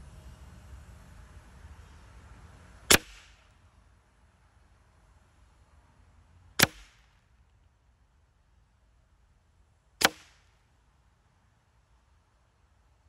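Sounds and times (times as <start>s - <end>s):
air rifle shots: 2.9s - 3.4s, 6.6s - 7.1s, 10.0s - 10.5s.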